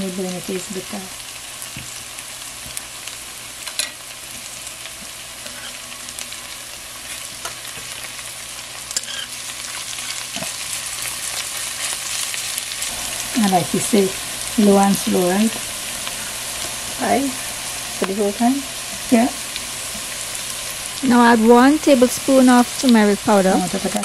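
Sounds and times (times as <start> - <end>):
onion and spices sizzling in oil: 0.0 - 24.0
metal spoon stirring and scraping: 5.4 - 5.8, 8.9 - 9.4.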